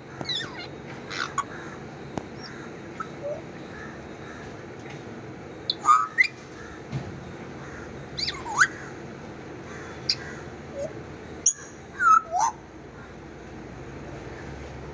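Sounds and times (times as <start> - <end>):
parrot whistling: 0.2 - 1.5, 3.0 - 3.4, 5.7 - 6.4, 8.2 - 8.8, 10.1 - 12.6.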